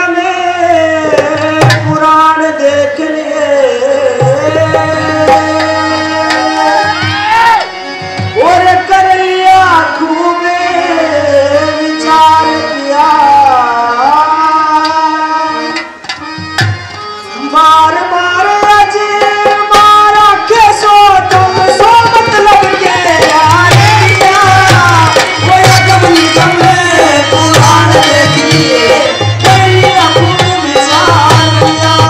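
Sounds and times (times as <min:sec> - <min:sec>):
hand drum rhythm: 0:21.3 - 0:32.0.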